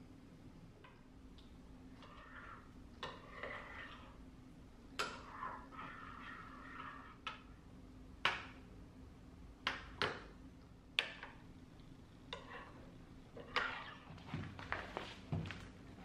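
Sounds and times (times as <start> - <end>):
spoon scraping a ceramic bowl: 2.0 - 4.2, 5.1 - 7.2, 12.3 - 14.2.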